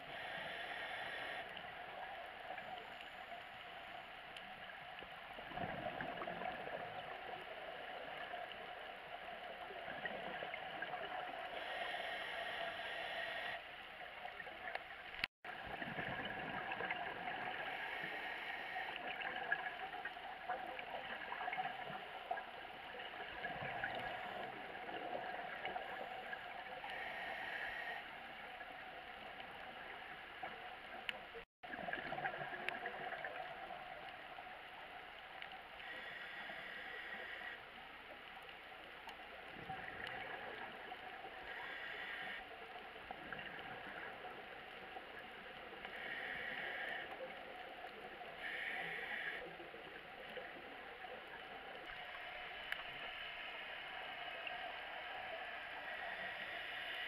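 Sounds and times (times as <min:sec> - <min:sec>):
scuba regulator breathing: 0:00.0 - 0:01.5, 0:11.4 - 0:13.7, 0:26.9 - 0:28.2, 0:45.9 - 0:47.3, 0:48.4 - 0:49.5
muffled underwater hiss: 0:00.0 - 0:57.0.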